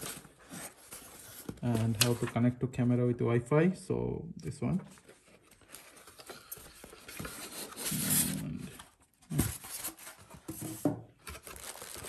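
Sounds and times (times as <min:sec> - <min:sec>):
packing insert scraping cardboard: 0:05.7 - 0:12.0.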